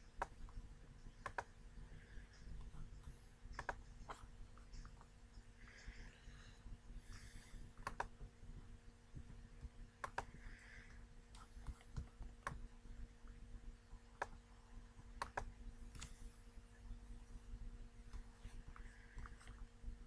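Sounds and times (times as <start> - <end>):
faint electrical hum: 0.0 - 20.0
computer mouse buttons clicking: 0.1 - 1.6, 3.5 - 5.1, 7.8 - 8.2, 10.0 - 10.4, 11.3 - 12.6, 14.2 - 14.4, 15.1 - 16.2.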